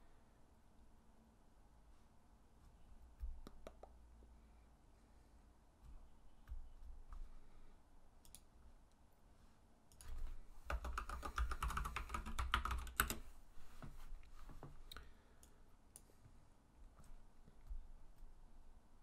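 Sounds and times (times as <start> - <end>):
computer keyboard typing: 9.9 - 13.3.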